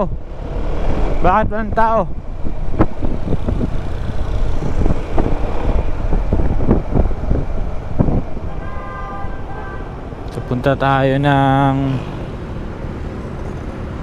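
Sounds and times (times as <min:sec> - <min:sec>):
wind buffeting microphone: 0:00.0 - 0:10.2
scooter engine and road rumble: 0:00.0 - 0:14.0.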